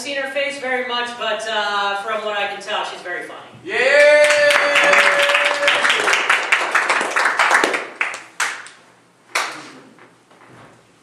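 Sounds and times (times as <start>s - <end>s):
long held cheer: 3.6s - 7.6s
audience applauding: 3.9s - 8.8s.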